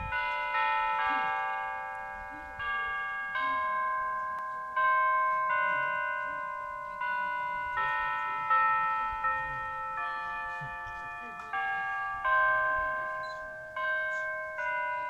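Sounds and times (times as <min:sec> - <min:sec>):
carillon bells playing slow melody: 0:00.0 - 0:15.0.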